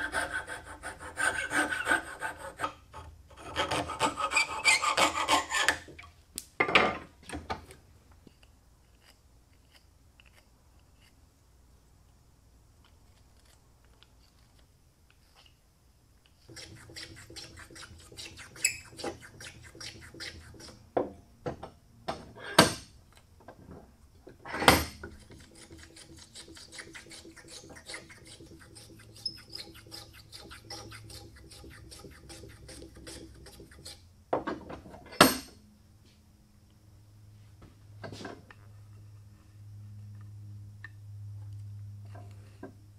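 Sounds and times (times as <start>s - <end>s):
hand plane scraping wood: 0.0s - 2.8s, 3.4s - 5.9s, 16.5s - 20.8s, 25.1s - 34.0s.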